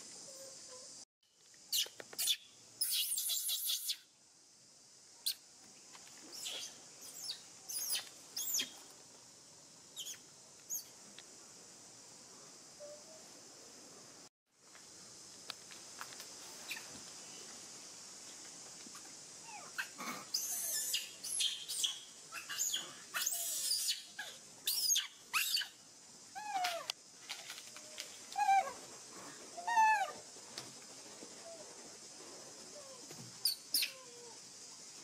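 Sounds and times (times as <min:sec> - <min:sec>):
young monkey screaming: 0:19.5 - 0:25.8, 0:26.4 - 0:26.9, 0:28.4 - 0:28.8, 0:29.6 - 0:30.2, 0:33.4 - 0:34.4.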